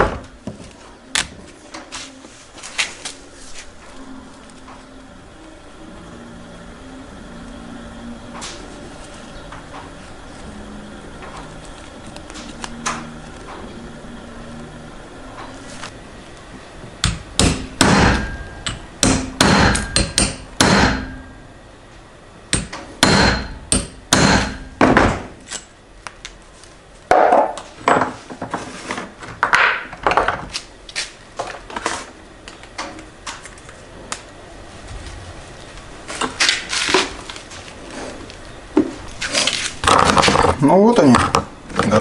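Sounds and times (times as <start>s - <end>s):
hammer striking metal punch: 17.0s - 21.4s, 22.5s - 25.3s.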